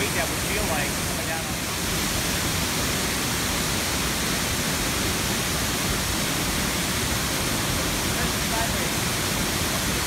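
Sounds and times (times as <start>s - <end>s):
waterfall rushing: 0.0s - 10.0s.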